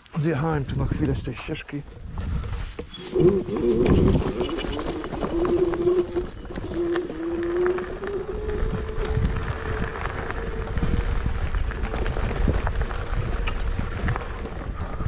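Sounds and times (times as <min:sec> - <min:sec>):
scooter rumble and rattles: 0:00.6 - 0:15.0
electric motor whine: 0:03.0 - 0:12.3.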